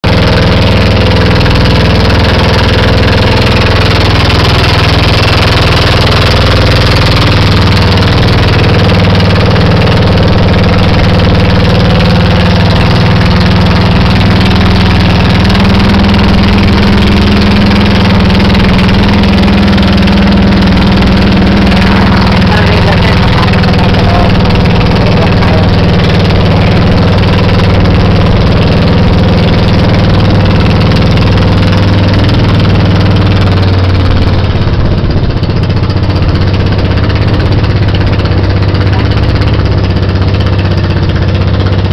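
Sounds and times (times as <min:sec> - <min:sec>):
boat engine running: 0:00.0 - 0:41.9
steady rushing noise: 0:00.0 - 0:41.9.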